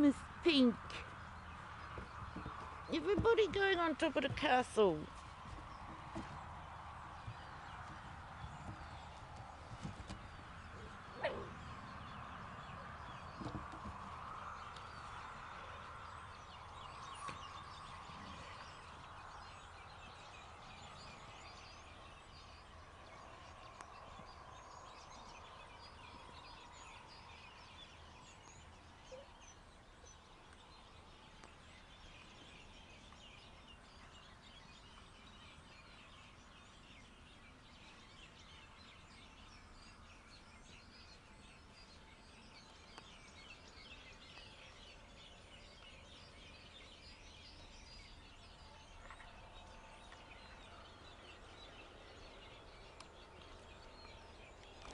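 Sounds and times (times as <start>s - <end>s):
faint bird chirps: 14.7s - 54.9s.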